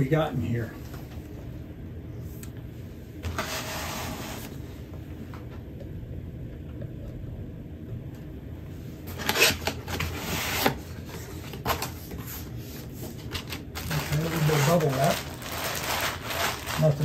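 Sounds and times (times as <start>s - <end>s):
steady low hum: 0.0s - 17.0s
cardboard and plastic rustling: 9.1s - 17.0s.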